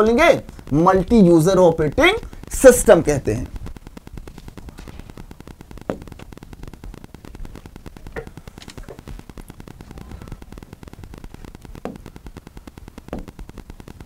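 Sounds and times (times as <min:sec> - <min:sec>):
crackly static hiss: 0:00.0 - 0:14.0
faint ticks: 0:03.5 - 0:14.0.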